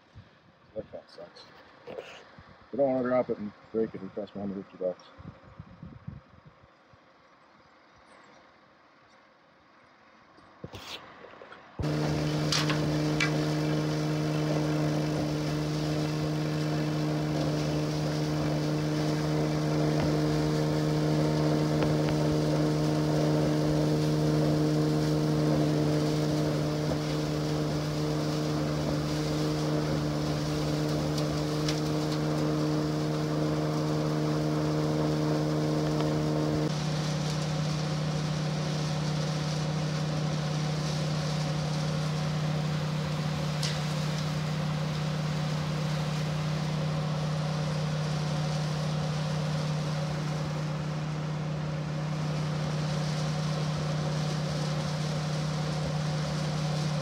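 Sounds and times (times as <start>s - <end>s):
machine hum: 11.8s - 57.0s
rushing hiss of material: 11.8s - 57.0s.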